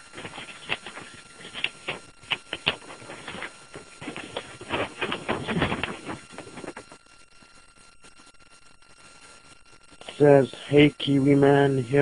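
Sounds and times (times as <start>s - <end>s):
paper rustling and crinkling: 0.0s - 7.1s.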